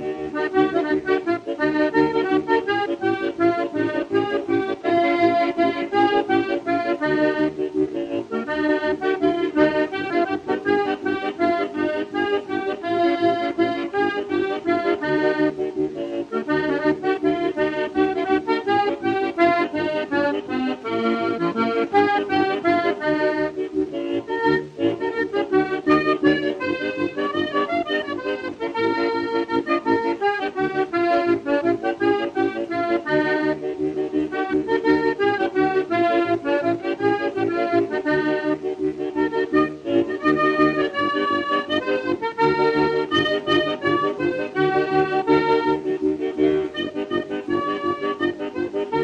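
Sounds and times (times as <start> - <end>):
fast instrumental tune: 0.0 - 49.0.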